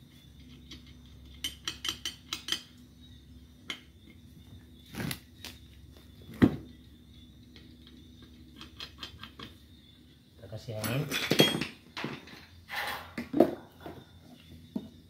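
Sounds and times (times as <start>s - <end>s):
short scrape: 12.7s - 13.2s.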